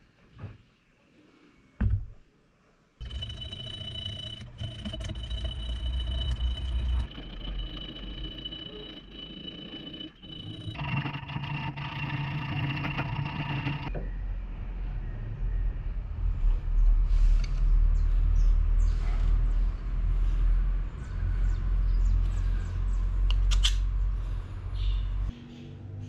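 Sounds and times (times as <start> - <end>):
motor humming and whining: 3.0 - 13.9.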